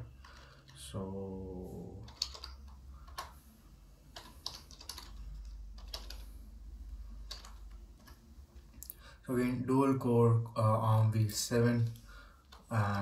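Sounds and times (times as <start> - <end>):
low steady hum: 0.0 - 13.0
keyboard keys clicking: 2.1 - 3.4, 4.1 - 6.3, 7.2 - 8.2.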